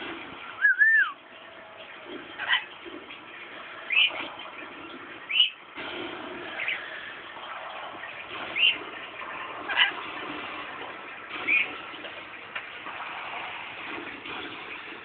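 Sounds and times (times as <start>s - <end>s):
parrot shrill calls: 0.6s - 1.2s.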